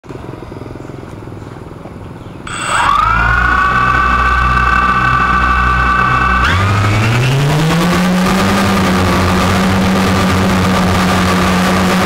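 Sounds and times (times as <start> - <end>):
steady high whine: 2.5 - 12.0.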